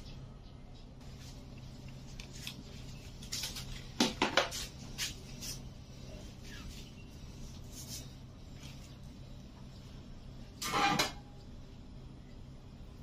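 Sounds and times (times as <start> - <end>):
faint low hum: 0.0 - 13.0
objects knocking and clattering: 4.0 - 4.6.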